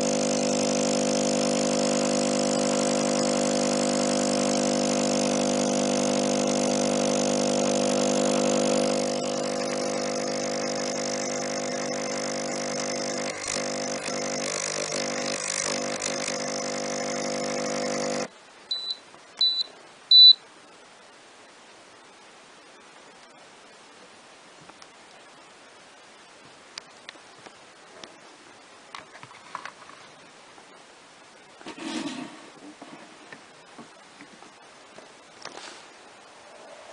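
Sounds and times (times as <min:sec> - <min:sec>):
machine hum and hiss: 0:00.0 - 0:36.9
short high beeps: 0:18.7 - 0:20.4.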